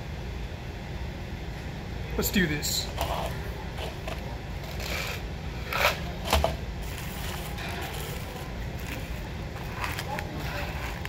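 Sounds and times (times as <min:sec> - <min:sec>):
steady low hum: 0:00.0 - 0:11.0
plastic cup and paper handling: 0:05.8 - 0:11.0.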